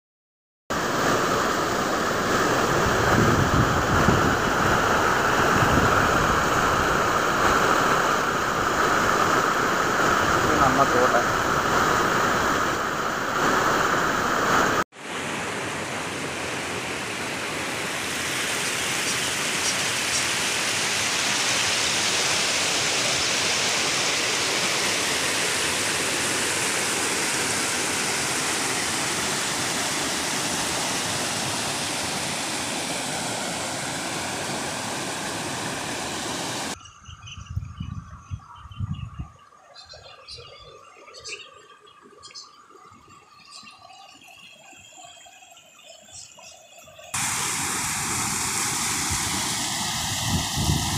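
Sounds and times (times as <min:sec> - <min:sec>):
floodwater rushing: 0:00.7 - 0:36.8, 0:46.9 - 0:50.9.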